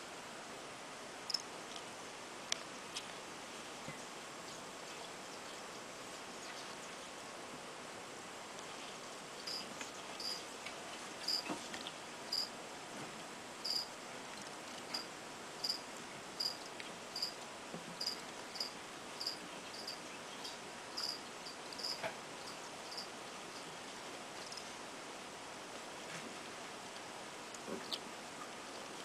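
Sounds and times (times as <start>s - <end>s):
faint steady hiss: 0.0s - 29.0s
cricket chirping: 1.3s - 1.5s, 9.4s - 10.5s, 11.2s - 11.5s, 12.3s - 12.5s, 13.6s - 13.9s, 14.9s - 17.4s, 18.0s - 23.7s, 24.4s - 24.7s.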